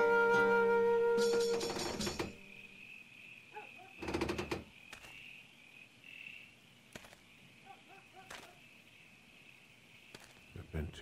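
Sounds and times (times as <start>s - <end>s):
crickets chirring: 1.0s - 11.0s
sharp knocks and clatter: 1.4s - 2.4s, 4.0s - 5.2s.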